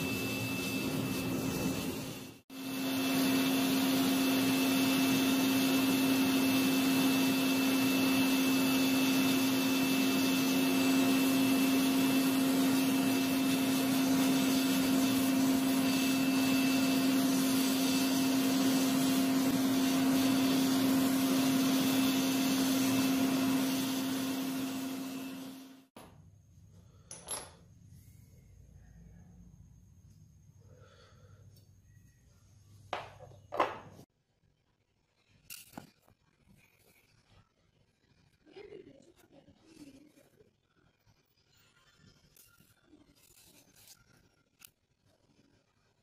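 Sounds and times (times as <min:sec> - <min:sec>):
electric air blower running: 0:00.0 - 0:25.9.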